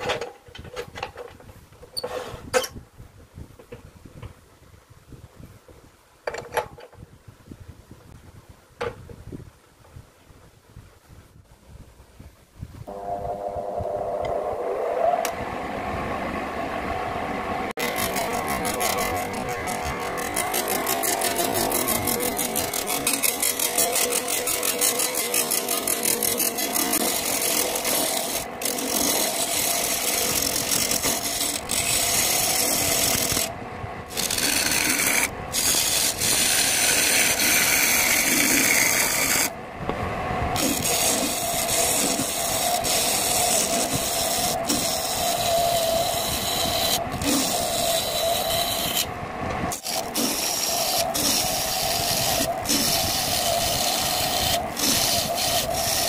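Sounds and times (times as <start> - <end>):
lathe humming: 12.9 - 39.5, 40.6 - 56.0
chisel scraping on lathe wood: 17.8 - 33.5, 34.1 - 39.5, 40.6 - 49.1, 49.7 - 56.0.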